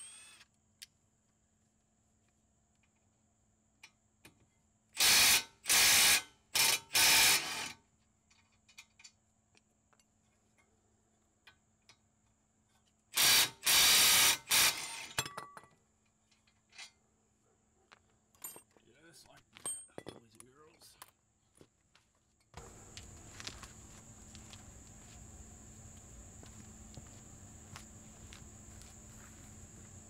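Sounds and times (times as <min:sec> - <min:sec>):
power tool bursts: 0:00.0 - 0:00.4, 0:05.0 - 0:07.8, 0:13.1 - 0:15.2.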